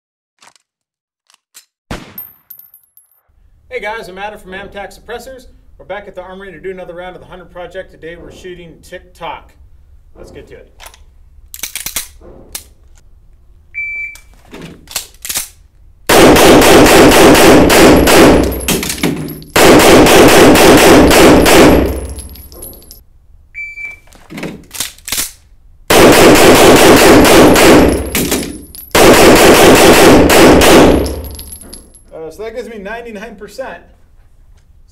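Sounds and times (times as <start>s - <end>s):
pistol handling clicks: 10.8s - 12.7s
shot timer beep: 13.8s - 14.2s, 23.6s - 24.0s
rapid pistol shots echoing: 16.1s - 22.3s, 25.9s - 31.4s.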